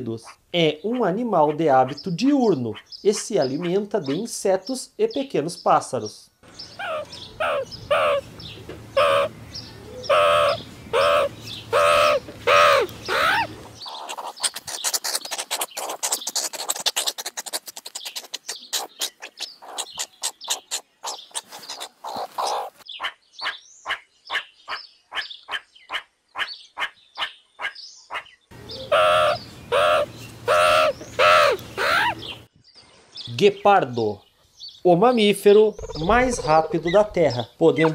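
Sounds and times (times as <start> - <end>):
meerkat pitched calls: 6.7 - 8.2, 8.9 - 32.4, 35.8 - 37.2
meerkat rapid high chirps and clicks: 10.1 - 23.1, 28.8 - 32.4.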